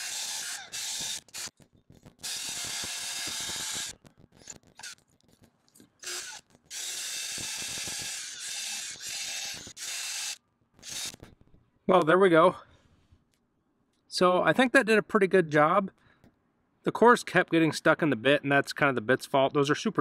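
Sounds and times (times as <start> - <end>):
drill whirring: 0.0 - 1.6, 2.2 - 5.0, 6.0 - 11.3.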